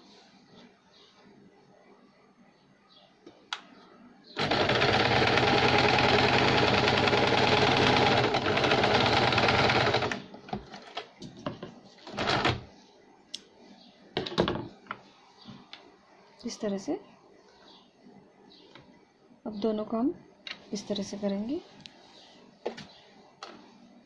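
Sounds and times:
electric sewing machine stitching: 4.4s - 10.3s, 12.1s - 12.6s.

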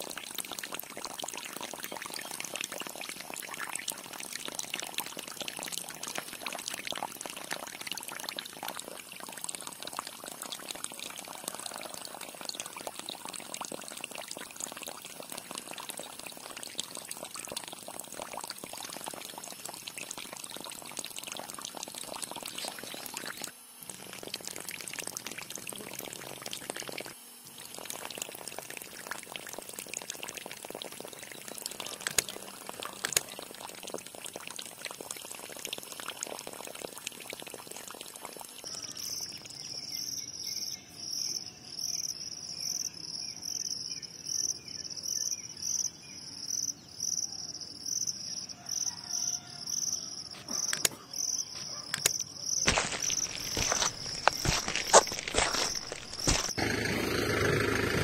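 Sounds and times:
water splashing on plastic toys: 0.0s - 38.6s, 52.0s - 56.6s.

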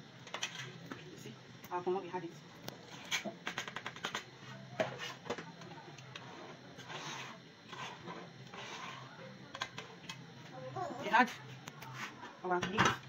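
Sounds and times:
steady low hum: 0.0s - 13.0s
scraping and rubbing of pot: 2.8s - 5.3s, 6.2s - 9.2s.

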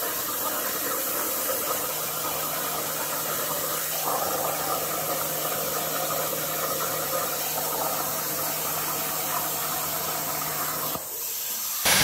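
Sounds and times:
plasma torch hissing: 10.3s - 12.0s.

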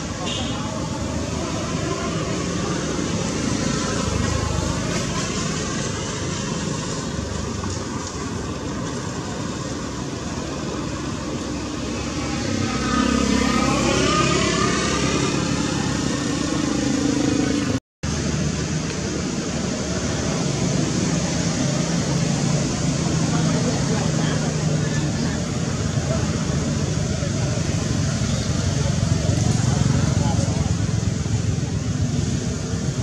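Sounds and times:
motor traffic engine noise: 0.0s - 33.0s
vehicle passing: 0.0s - 33.0s.

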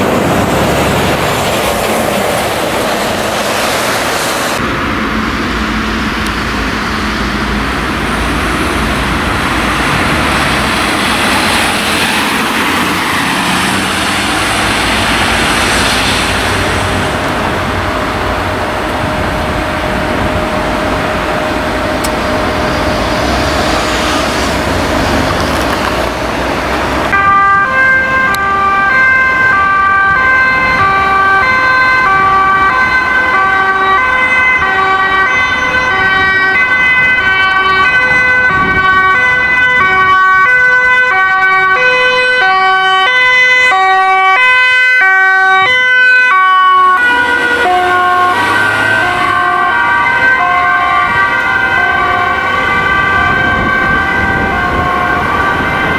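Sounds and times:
vehicle road noise: 0.0s - 55.9s
two-tone siren: 9.1s - 24.9s, 27.1s - 55.9s.

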